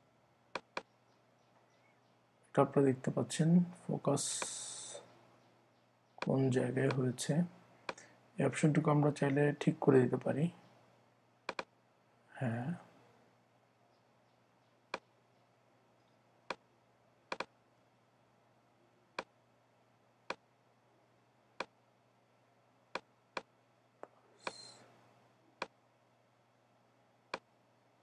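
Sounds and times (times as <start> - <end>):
faint room hum: 0.0 - 28.0
computer mouse clicking: 17.3 - 17.5.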